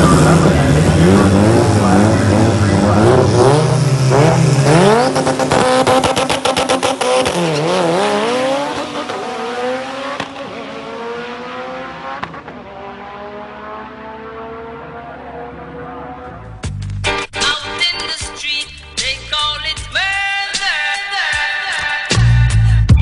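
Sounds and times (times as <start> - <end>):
drag car engine revving: 0.0 - 16.6
car accelerating: 0.0 - 16.7.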